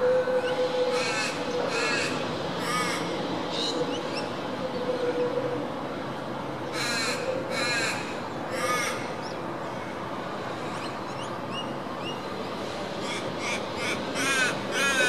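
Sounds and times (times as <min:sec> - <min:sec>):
crow cawing: 0:13.4 - 0:15.0.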